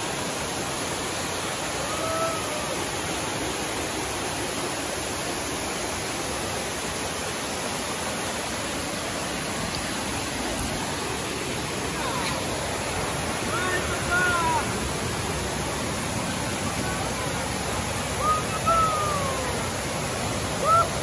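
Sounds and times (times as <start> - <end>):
waterfall rushing over rocks: 0.0 - 21.0.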